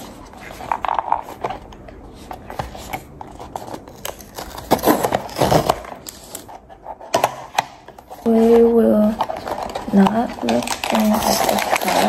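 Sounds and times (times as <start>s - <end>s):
rustling of torn seals: 0.0s - 6.7s, 8.0s - 12.0s
cardboard boxes opened by hand: 0.0s - 7.4s.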